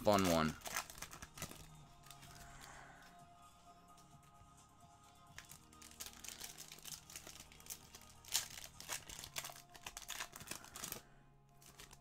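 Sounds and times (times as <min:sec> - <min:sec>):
plastic wrapper crinkling: 0:00.0 - 0:02.8, 0:05.4 - 0:12.0
plastic wrapper ripping: 0:00.0 - 0:02.8, 0:05.3 - 0:12.0.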